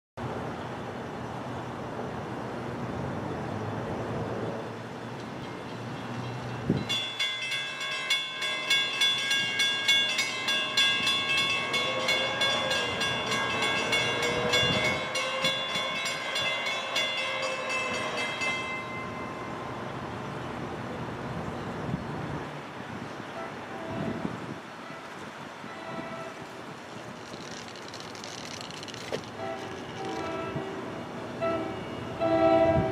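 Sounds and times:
railroad crossing bell ringing: 0:05.2 - 0:20.8, 0:29.4 - 0:32.9.

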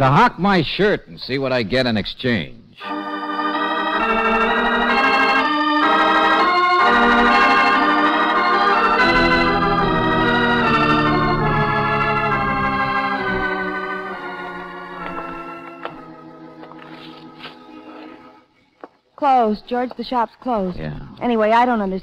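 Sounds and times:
organ chords: 0:02.8 - 0:18.5.

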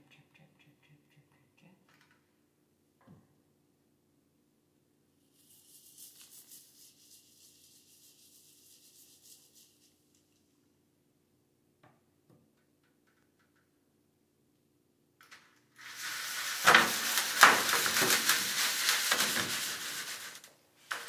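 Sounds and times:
scrub brush on wet soap: 0:05.1 - 0:10.6, 0:15.8 - 0:21.0.

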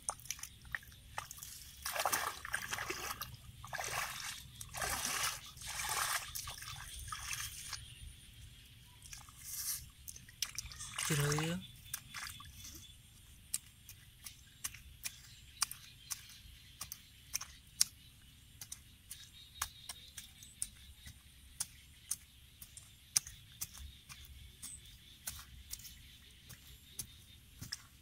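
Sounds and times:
wooden pole jabbing muddy soil: 0:00.0 - 0:06.7, 0:13.4 - 0:28.0.

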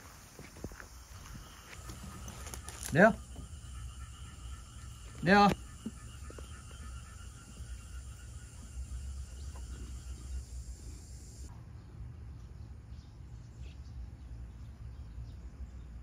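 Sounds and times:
faint high chirping: 0:00.7 - 0:11.5.

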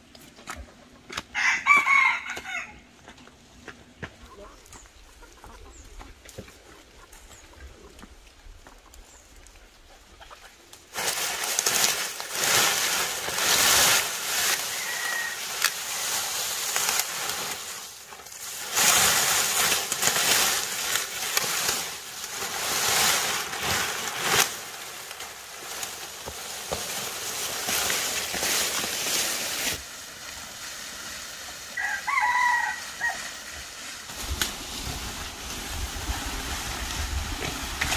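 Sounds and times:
dry corn stalks rustling: 0:00.0 - 0:37.9
stalk snapping: 0:10.7 - 0:30.4, 0:34.1 - 0:35.7.

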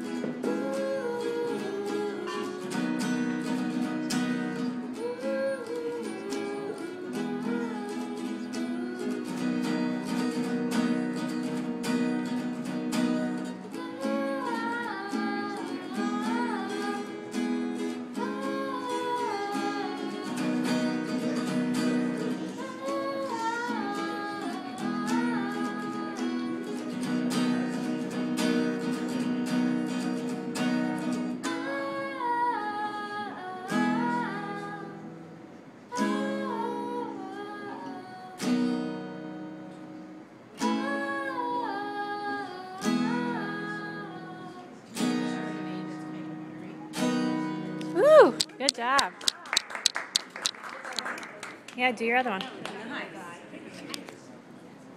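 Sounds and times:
person singing: 0:00.0 - 0:11.6, 0:12.4 - 0:28.0, 0:31.4 - 0:35.2, 0:35.9 - 0:38.9, 0:40.6 - 0:45.4, 0:47.1 - 0:48.7
acoustic guitar strumming: 0:00.0 - 0:49.2.

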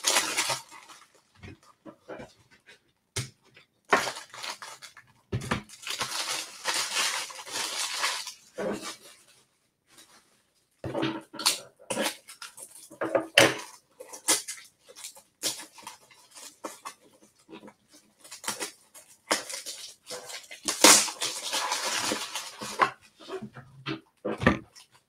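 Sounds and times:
rustling: 0:05.7 - 0:10.8.

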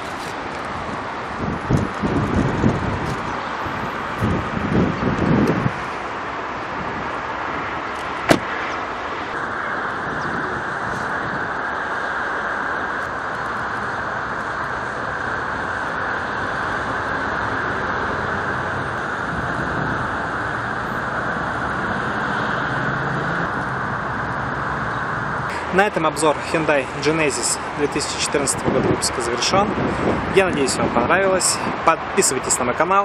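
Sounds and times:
traffic noise: 0:00.0 - 0:33.0.

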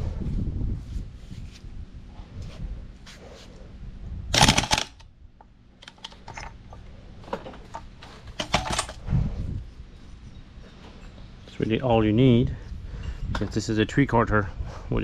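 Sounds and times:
metal parts clicking and rattling: 0:04.3 - 0:05.0, 0:05.8 - 0:09.0.

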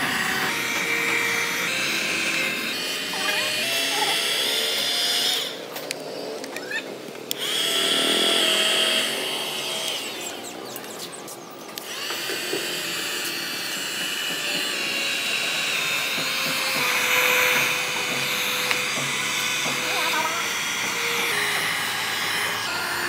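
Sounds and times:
heat gun fan whining: 0:00.0 - 0:23.0.

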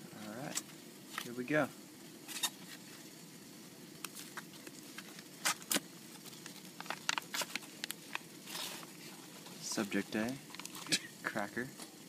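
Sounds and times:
foil pouches crinkling: 0:04.0 - 0:11.1.

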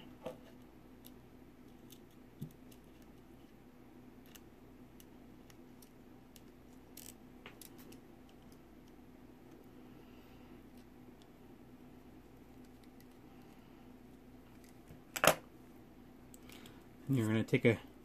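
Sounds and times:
faint steady hum: 0:00.0 - 0:18.0
small metal parts clicking: 0:05.8 - 0:08.4.

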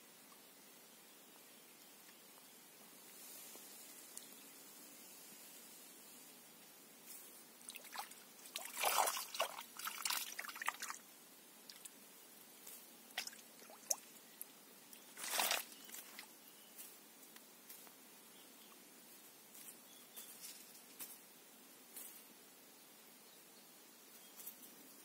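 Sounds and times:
grass rustling and crackling: 0:03.0 - 0:06.4, 0:07.0 - 0:11.0, 0:11.6 - 0:13.6, 0:14.9 - 0:18.0, 0:19.1 - 0:21.3.

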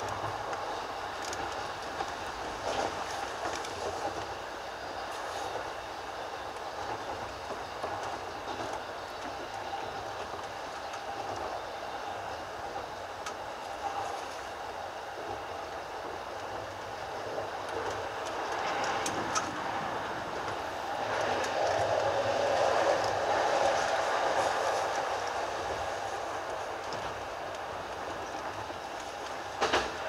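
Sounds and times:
electric train rolling on track: 0:00.0 - 0:30.0.

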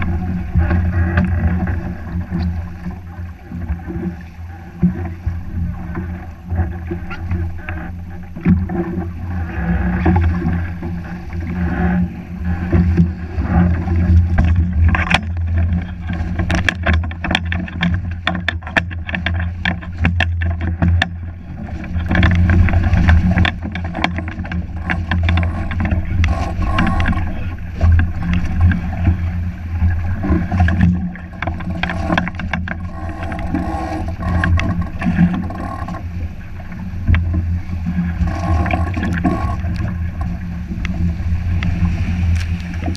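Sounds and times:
water slapping against hull: 0:00.0 - 0:42.9
wind rumble on microphone: 0:00.0 - 0:42.9
sharp knocks and splashes: 0:12.7 - 0:42.9.

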